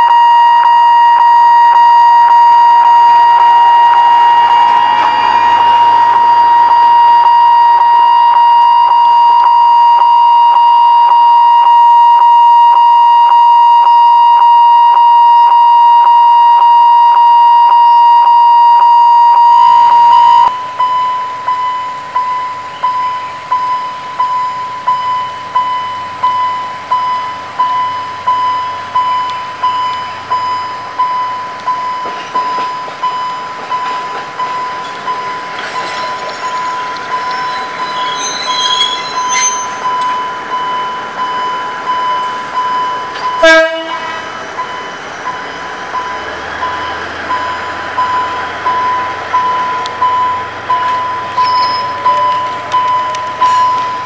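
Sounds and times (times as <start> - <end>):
level crossing warning tone: 0.0 - 54.0
level crossing bell ringing: 32.5 - 43.5.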